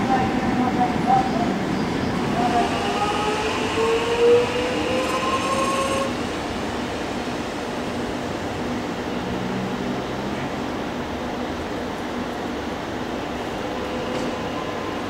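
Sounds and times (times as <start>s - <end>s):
electric train traction whine: 0.0s - 9.2s
train rumble: 0.0s - 15.0s.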